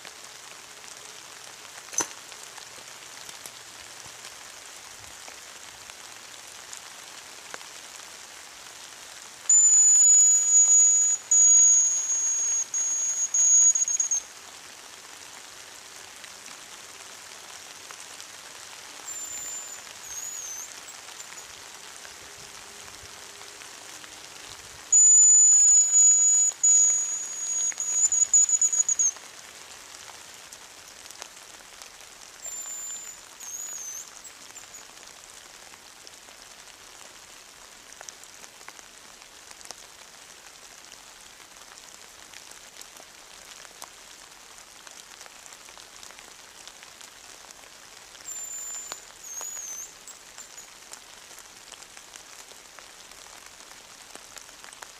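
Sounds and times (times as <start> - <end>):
light drizzle hissing: 0.0 - 54.9
bird whistle ending in trill: 9.5 - 14.2, 19.1 - 21.4, 25.0 - 29.2, 32.4 - 34.8, 48.3 - 50.7
high-pitched decoy whistle: 9.5 - 14.2, 19.1 - 21.5, 24.9 - 29.2, 32.4 - 34.8, 48.3 - 50.7.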